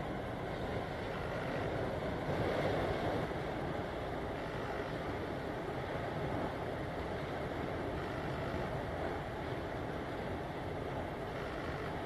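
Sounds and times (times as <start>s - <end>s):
choppy water washing: 1.7s - 4.3s.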